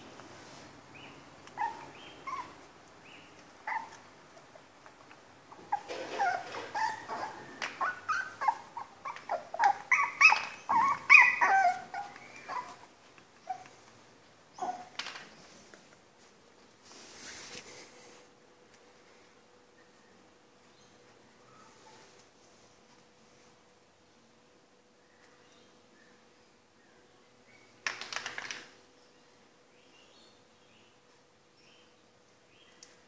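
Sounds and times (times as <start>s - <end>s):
dog yipping and whining: 1.6s - 2.6s, 3.6s - 4.0s, 5.5s - 13.7s, 14.6s - 15.0s.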